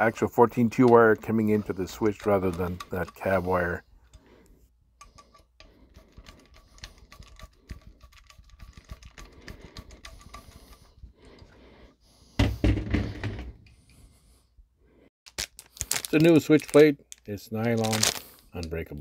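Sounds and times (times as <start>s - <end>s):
screwdriver metal clicks and scrapes: 0.4s - 4.3s, 5.0s - 11.5s.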